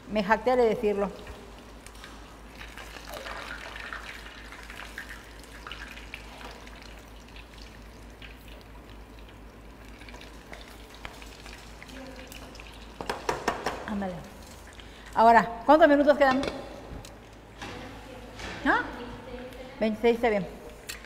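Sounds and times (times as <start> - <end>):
food deep-frying in hot oil: 1.1 - 15.1
small oil crackles: 1.2 - 13.2, 14.2 - 15.2.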